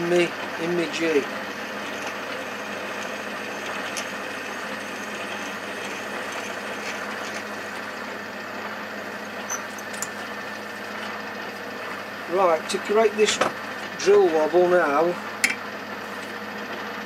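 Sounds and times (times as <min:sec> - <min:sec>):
lathe motor and spindle hum: 0:00.0 - 0:17.0.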